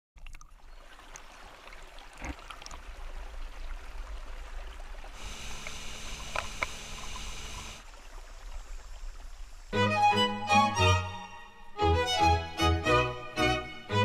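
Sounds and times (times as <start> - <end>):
water lapping against boat: 0.2 - 9.7
motorboat motor whine: 5.2 - 7.9.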